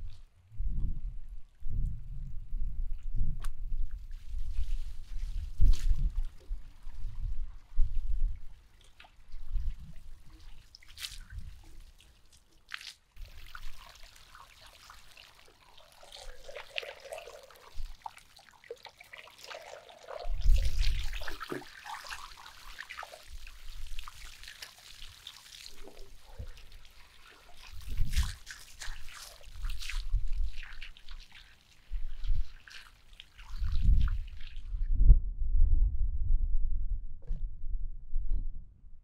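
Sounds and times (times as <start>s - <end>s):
hose water splashing on fish: 8.7s - 34.7s.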